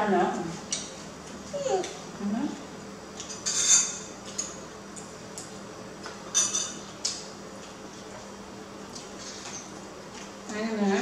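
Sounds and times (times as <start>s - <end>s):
cutlery clinking on plates: 3.2s - 4.6s, 6.3s - 6.8s.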